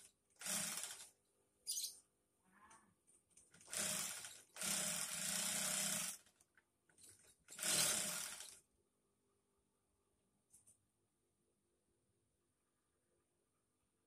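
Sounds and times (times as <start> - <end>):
sewing machine stitching: 0.0 - 1.1, 3.5 - 6.4, 7.0 - 8.6.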